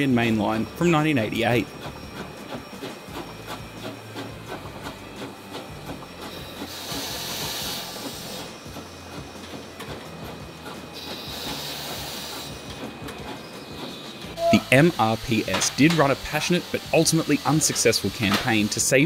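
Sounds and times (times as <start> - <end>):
steam locomotive hissing: 0.0 - 19.0
loud high steam hiss: 6.4 - 8.6, 11.0 - 12.6, 14.4 - 19.0.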